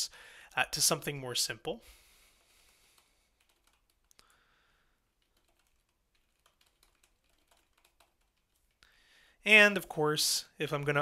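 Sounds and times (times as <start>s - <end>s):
faint keyboard typing: 2.4s - 4.4s, 5.1s - 8.9s.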